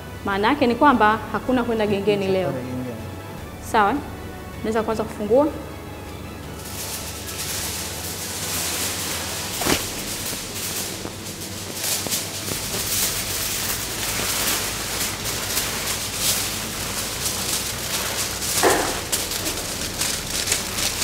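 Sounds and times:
packaging crinkling and rustling: 6.5s - 21.0s.

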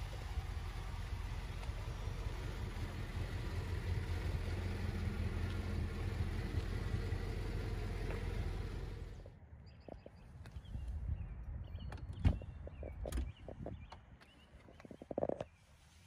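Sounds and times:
car engine idling: 0.0s - 9.4s.

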